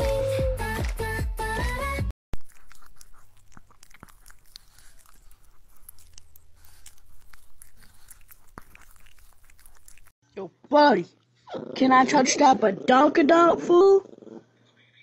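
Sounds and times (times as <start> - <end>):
dog licking and nibbling paw: 2.4 - 10.1.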